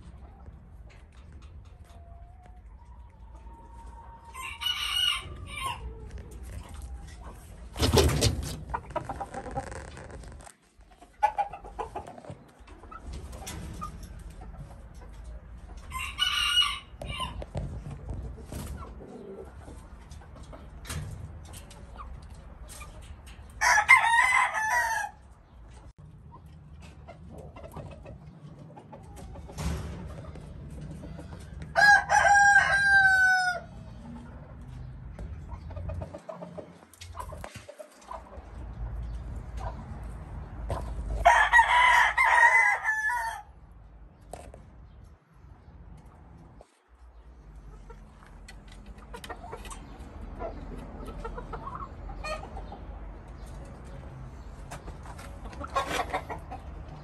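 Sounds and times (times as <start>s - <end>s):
roosters crowing: 3.3s - 6.4s, 15.8s - 17.6s, 23.5s - 25.3s, 31.2s - 34.2s, 40.7s - 43.6s.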